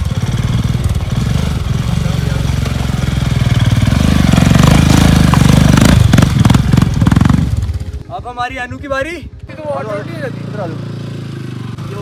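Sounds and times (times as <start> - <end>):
motorcycle engine revving: 0.0 - 8.0, 9.4 - 12.0.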